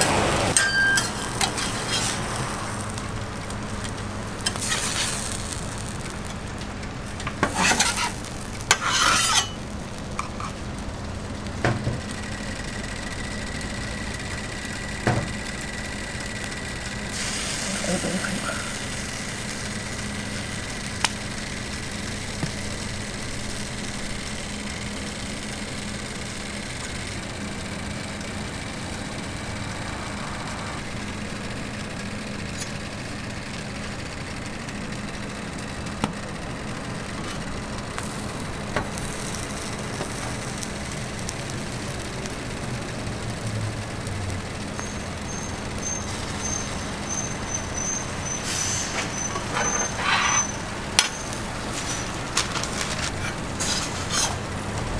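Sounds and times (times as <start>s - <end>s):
low machinery hum: 0.0s - 54.9s
metal spatula scraping griddle: 0.6s - 2.5s, 4.4s - 5.6s, 7.2s - 9.6s, 45.9s - 54.4s.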